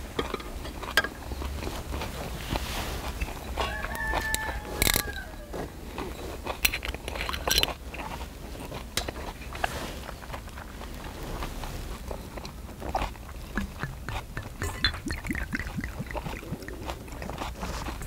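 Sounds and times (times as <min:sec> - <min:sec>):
low steady rumble: 0:10.0 - 0:18.0.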